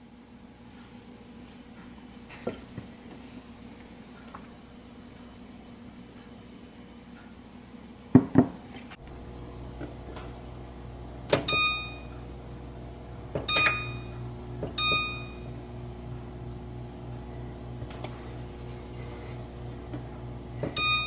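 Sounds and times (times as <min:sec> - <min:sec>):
low steady hum: 0:00.0 - 0:21.0
touch control panel beeps: 0:11.5 - 0:12.2, 0:13.5 - 0:14.1, 0:14.8 - 0:15.4, 0:20.8 - 0:21.0.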